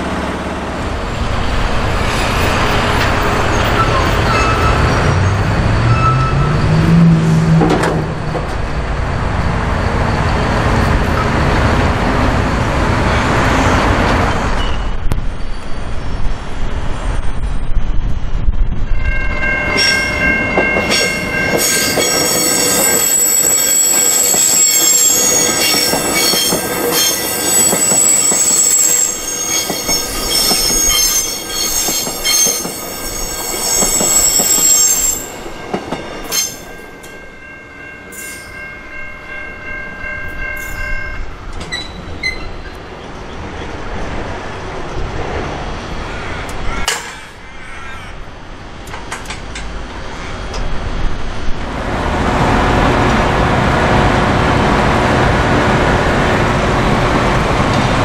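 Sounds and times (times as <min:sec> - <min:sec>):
road traffic rushing: 0:00.0 - 0:17.6, 0:18.9 - 0:58.0
train wheels squealing: 0:02.0 - 0:07.1, 0:14.2 - 0:16.3, 0:20.8 - 0:35.4, 0:36.2 - 0:36.7, 0:41.6 - 0:42.8
level crossing warning bell: 0:19.0 - 0:42.4.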